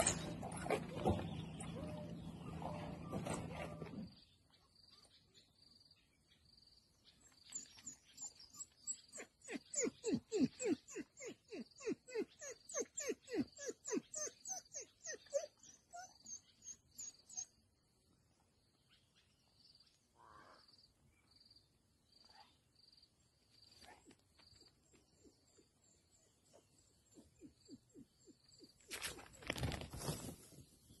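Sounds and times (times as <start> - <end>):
wild dogs twittering: 0.0 - 4.1, 8.2 - 17.5.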